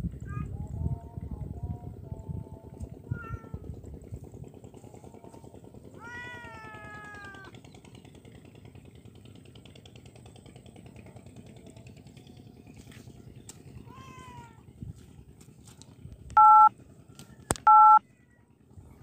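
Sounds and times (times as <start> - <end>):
steady low rumble: 0.0 - 6.1
animal meowing: 3.1 - 3.7, 5.9 - 7.6.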